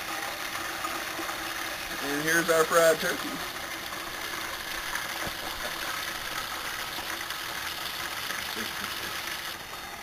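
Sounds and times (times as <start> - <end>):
hot frying oil hissing: 0.0 - 10.0.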